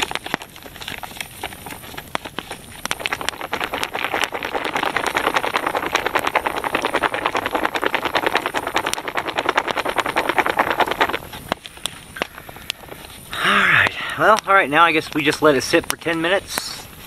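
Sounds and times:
foil pouch crinkling: 0.0 - 13.3
campfire crackling: 0.0 - 17.0.

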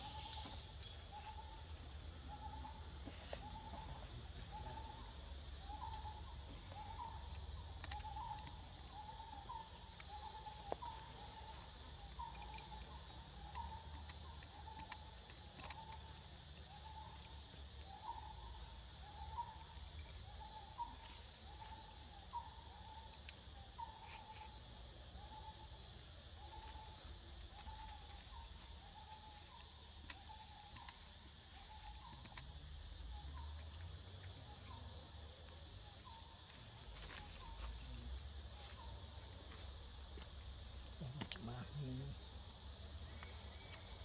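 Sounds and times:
bird calling: 0.0 - 1.7, 2.3 - 25.8
steady high hiss: 0.0 - 44.0.

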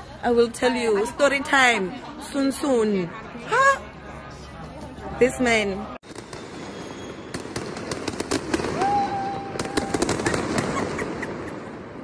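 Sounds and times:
fireworks crackling pops: 6.1 - 11.4.

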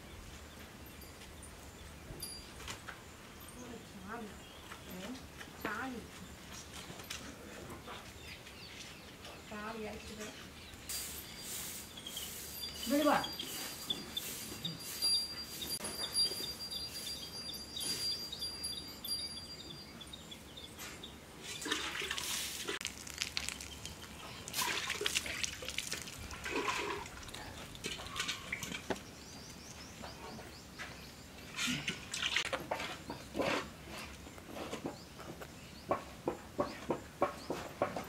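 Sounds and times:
milk squirting into steel pot: 21.6 - 27.3.

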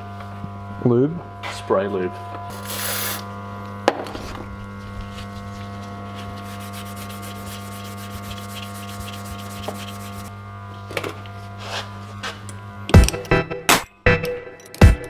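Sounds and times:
steady electrical hum: 0.0 - 15.0
abrasive pad rubbing on steel: 4.2 - 10.3.

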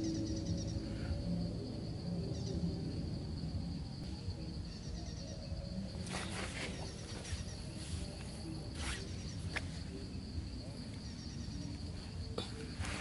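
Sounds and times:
insects droning: 0.0 - 13.0
rustling scrapes of sticks: 6.0 - 9.8.

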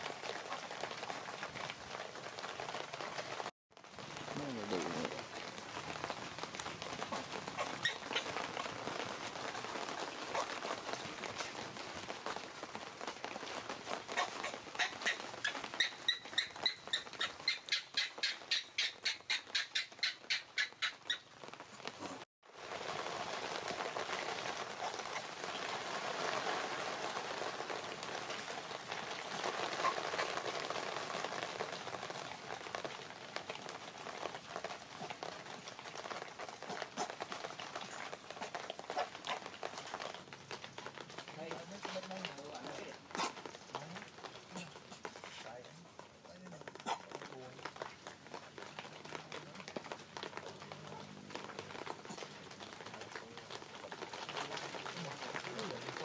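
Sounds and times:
animal squeaking: 7.1 - 8.3, 14.2 - 21.2
steady outdoor background hiss: 22.5 - 56.0.

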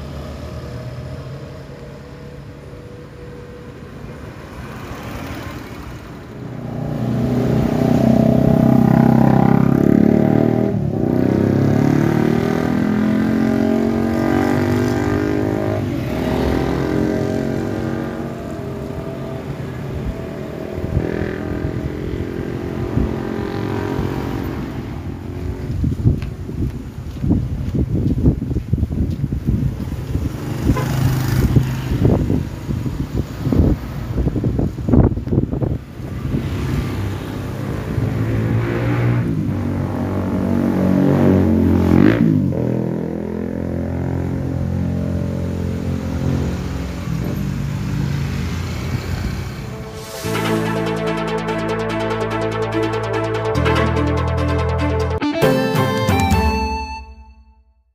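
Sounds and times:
vehicle engines passing: 0.0 - 56.5
wind buffeting microphone: 14.6 - 41.6.

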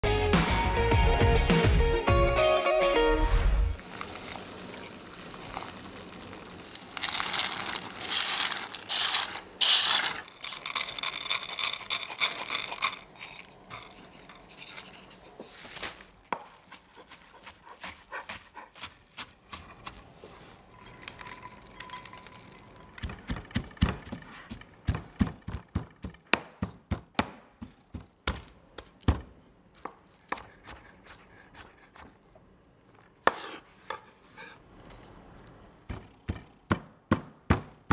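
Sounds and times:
knife chopping on wooden board: 33.2 - 34.1.

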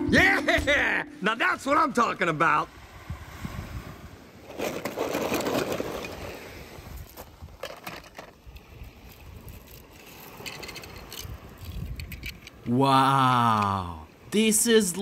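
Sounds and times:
toy cars rustling and scraping: 4.4 - 12.7.

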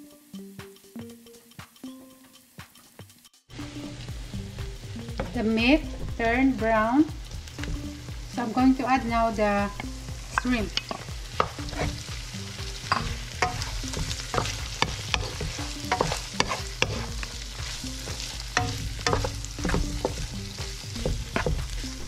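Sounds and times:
food sizzling in a pan: 0.0 - 22.0
wooden spatula scraping a wok: 10.2 - 12.2, 12.8 - 22.0.

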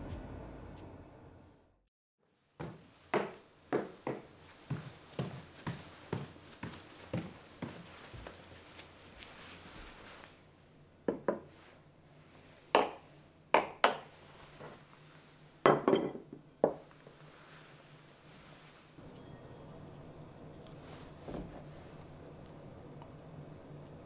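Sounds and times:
tableware clinking on wooden table: 12.8 - 13.0, 15.7 - 16.9, 19.0 - 20.8.

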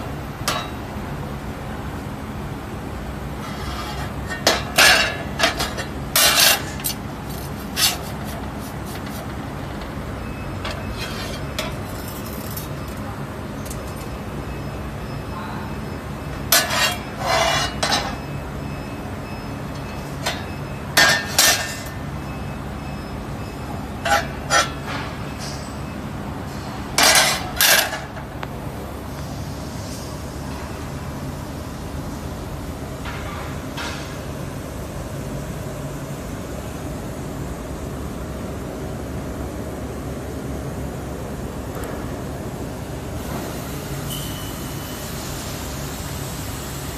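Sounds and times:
steel plates clanking: 3.4 - 10.0, 16.5 - 18.2, 24.0 - 25.6.

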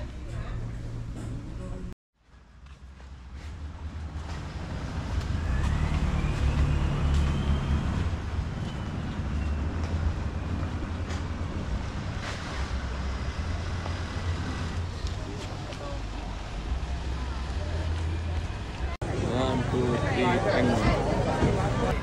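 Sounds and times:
vehicle engine rumble: 0.0 - 22.0.

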